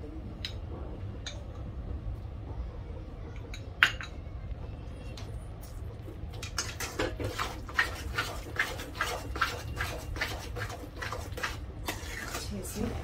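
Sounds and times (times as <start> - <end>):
masher squelching vegetables: 6.4 - 13.0.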